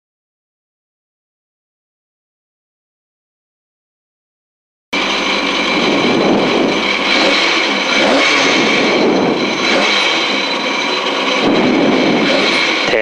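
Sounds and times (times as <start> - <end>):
rally car engine revving: 5.0 - 13.0.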